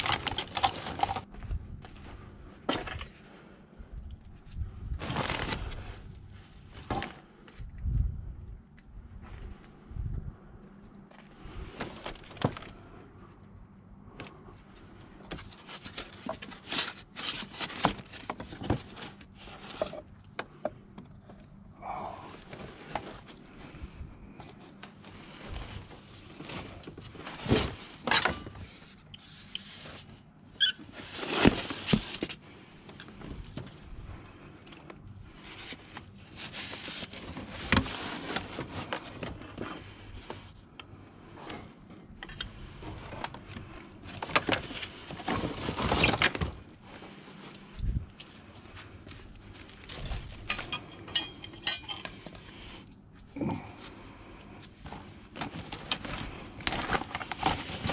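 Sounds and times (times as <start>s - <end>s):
scrap metal clanking and scraping: 25.2s - 30.0s, 49.9s - 52.5s.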